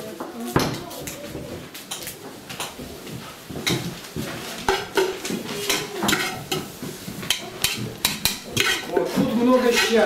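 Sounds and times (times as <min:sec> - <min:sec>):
metal pot clanking on a bowl: 0:04.7 - 0:10.0.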